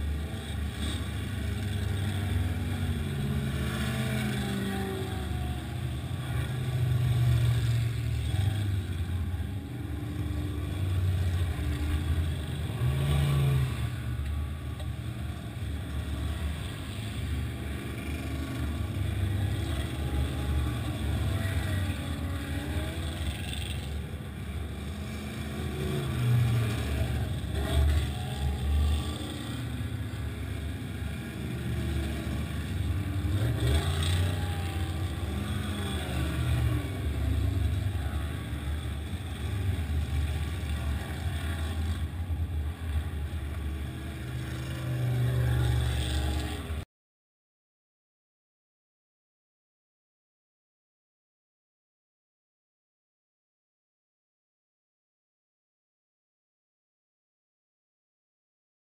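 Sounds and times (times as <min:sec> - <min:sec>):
vehicle engine revving: 0:00.0 - 0:09.5, 0:10.1 - 0:14.8, 0:15.5 - 0:46.8.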